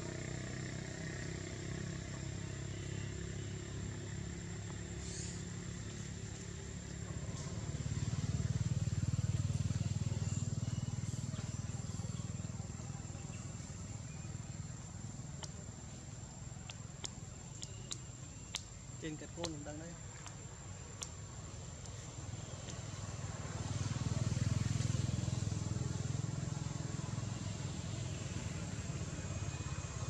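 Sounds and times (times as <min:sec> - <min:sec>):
passing vehicle engine hum: 0:00.0 - 0:30.0.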